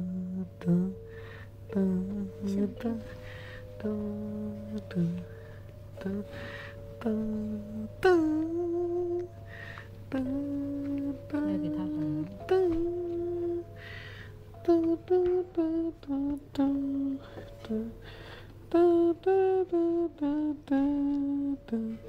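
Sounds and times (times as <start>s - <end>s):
woman humming: 0.0s - 5.4s, 6.0s - 9.5s, 10.1s - 13.8s.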